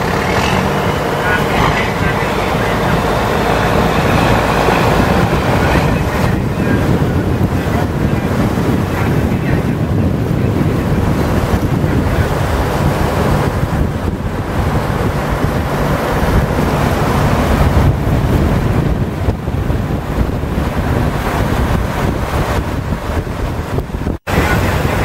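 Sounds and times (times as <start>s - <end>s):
boat engine running: 0.0s - 25.0s
water rushing: 0.0s - 25.0s
wind buffeting microphone: 0.0s - 25.0s.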